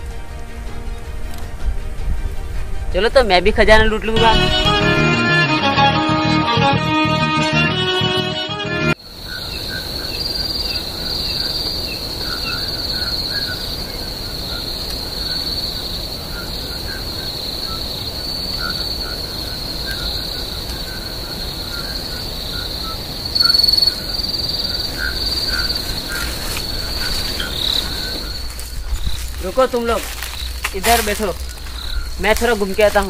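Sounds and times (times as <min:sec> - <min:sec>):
crickets chirring: 0:09.0 - 0:33.0
faint short insect calls: 0:09.0 - 0:33.0.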